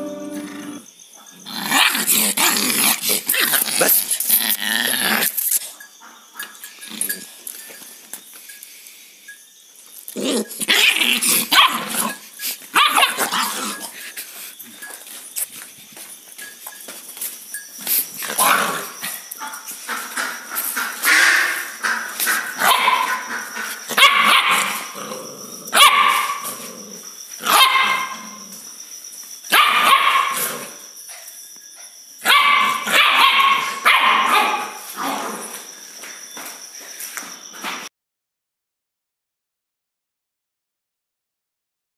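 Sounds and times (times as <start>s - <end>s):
puppy barking and yapping: 10.4s - 13.8s, 22.6s - 25.0s, 25.7s - 26.5s, 27.4s - 28.2s, 29.5s - 30.5s, 32.2s - 35.2s.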